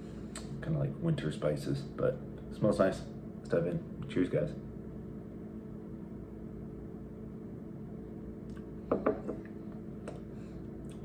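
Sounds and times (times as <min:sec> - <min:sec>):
low room tone hum: 0:00.0 - 0:11.0
glass set down on table: 0:08.9 - 0:09.5.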